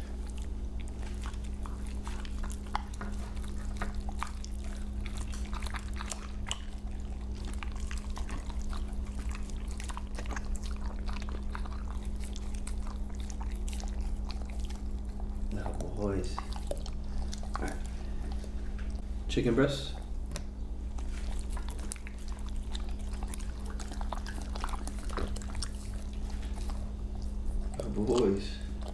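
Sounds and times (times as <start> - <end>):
dogs chewing and licking: 0.0 - 28.9
steady low hum: 0.0 - 28.9.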